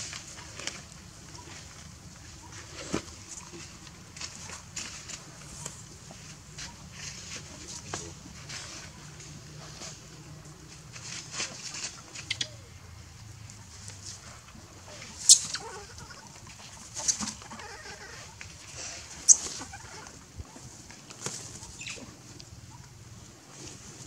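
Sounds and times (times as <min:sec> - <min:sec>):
young monkeys squealing: 0:15.1 - 0:16.4, 0:17.0 - 0:20.2.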